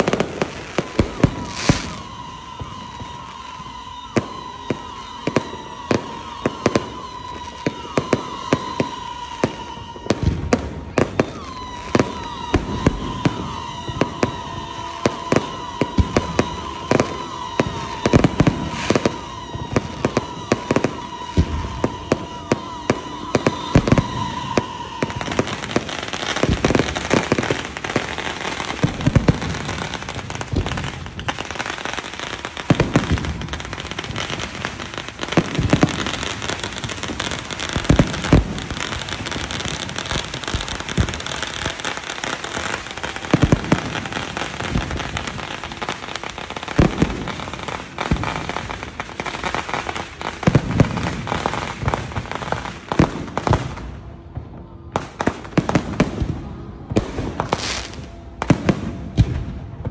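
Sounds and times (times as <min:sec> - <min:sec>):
fireworks crackling: 0:00.0 - 0:59.9
firework shells booming: 0:09.8 - 0:49.1.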